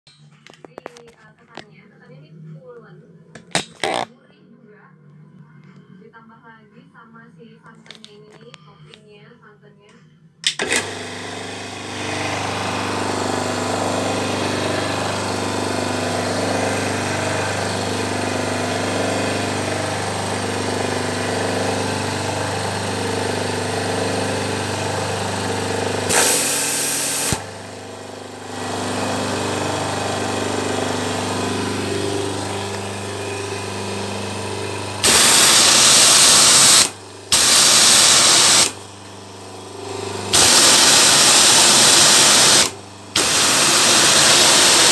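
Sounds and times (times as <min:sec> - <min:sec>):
pressure washer motor and pump: 0:03.6 - 0:04.0, 0:10.6 - 0:44.9.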